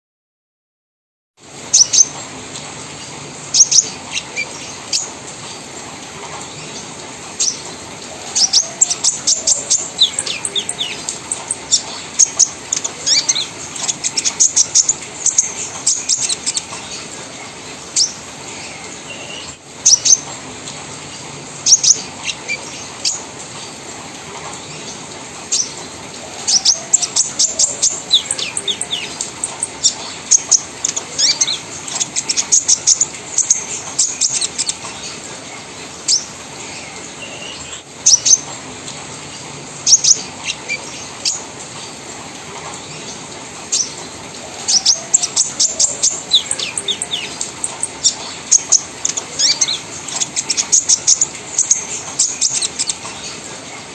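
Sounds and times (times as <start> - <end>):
sunbird high chirping chatter: 6.6 - 20.3, 21.6 - 23.8, 24.7 - 35.2, 44.6 - 53.4.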